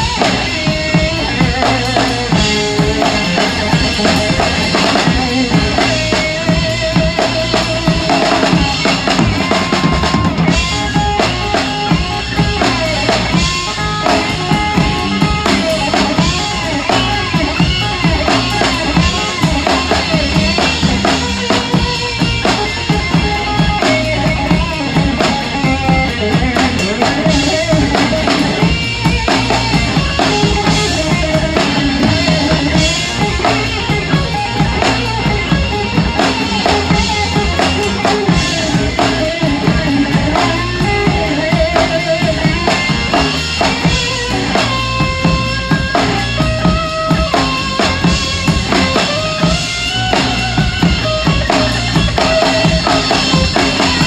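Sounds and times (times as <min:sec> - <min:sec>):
rock band playing: 0:00.0 - 0:54.0
rock drum kit playing: 0:00.0 - 0:54.0.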